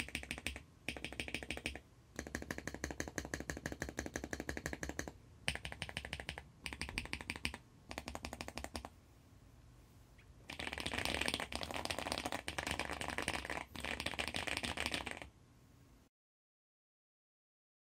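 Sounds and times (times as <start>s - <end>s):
typing on mechanical keyboard: 0.0s - 8.9s.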